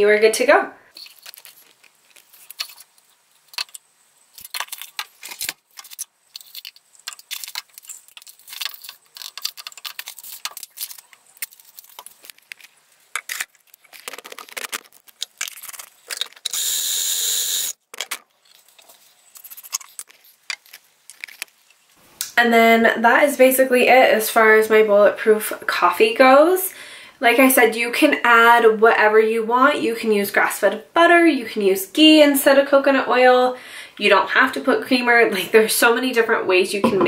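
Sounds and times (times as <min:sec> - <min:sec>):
blender running: 0:16.5 - 0:17.7.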